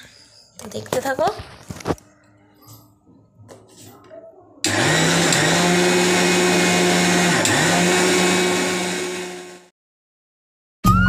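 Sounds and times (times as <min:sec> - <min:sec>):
mixer grinder grinding rice: 0:04.7 - 0:09.7.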